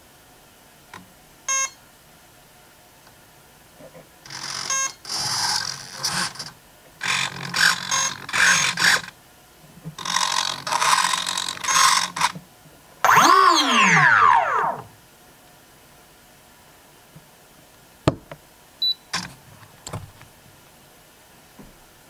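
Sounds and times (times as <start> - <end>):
small servos whirring: 4.3 - 9.1, 10.0 - 12.4, 13.0 - 14.9
electric motor whine: 13.1 - 14.9.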